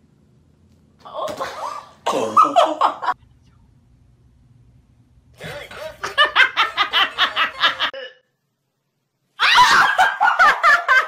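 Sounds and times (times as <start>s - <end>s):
person laughing in bursts: 5.4s - 8.1s.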